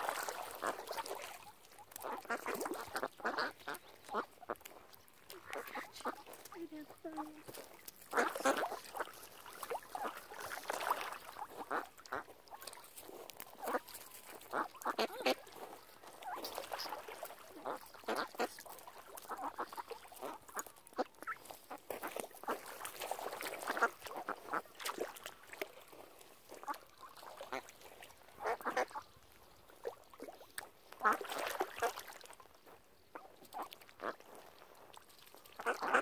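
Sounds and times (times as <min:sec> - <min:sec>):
ducks quacking: 0:00.1 - 0:12.8, 0:13.5 - 0:22.7, 0:23.5 - 0:24.7, 0:28.4 - 0:29.1, 0:33.1 - 0:34.3, 0:35.6 - 0:36.0.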